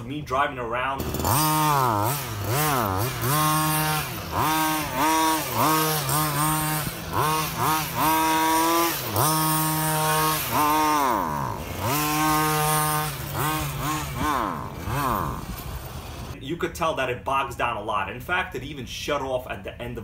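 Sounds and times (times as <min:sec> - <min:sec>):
rc car engine revving: 0:00.9 - 0:16.4.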